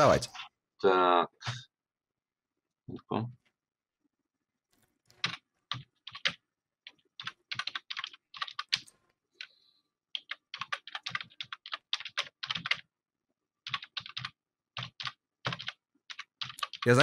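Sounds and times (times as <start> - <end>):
computer keyboard typing: 5.2 - 9.5, 10.1 - 12.8, 13.6 - 17.0.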